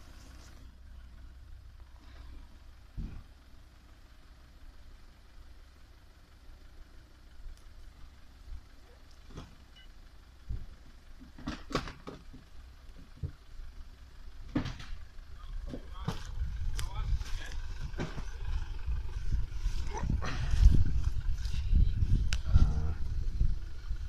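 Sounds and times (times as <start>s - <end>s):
suv engine low rumble: 0.0s - 24.0s
sharp knocks and cracks: 10.5s - 12.4s, 14.5s - 15.0s.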